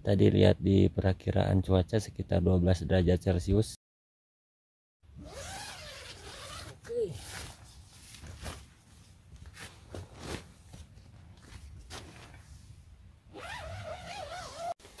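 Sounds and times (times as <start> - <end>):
zipper rasping: 5.2 - 7.5, 13.3 - 14.8
fabric and bag rustling: 5.3 - 12.7.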